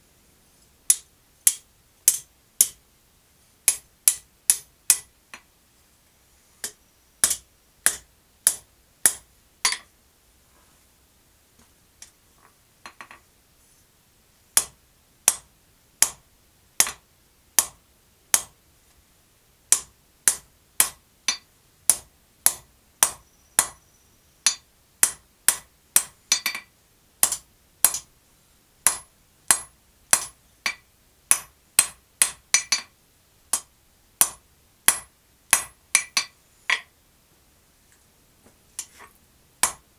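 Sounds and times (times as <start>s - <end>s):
hammer striking metal on anvil: 7.2s - 9.9s, 24.4s - 26.6s, 28.8s - 32.9s, 33.5s - 36.8s.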